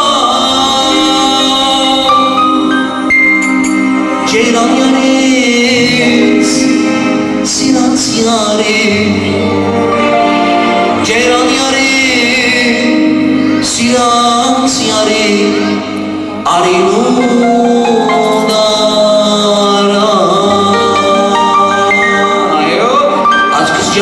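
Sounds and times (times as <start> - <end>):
drums: 0.0 - 9.6, 10.9 - 17.6
man singing into microphone: 0.0 - 10.1, 10.8 - 24.0.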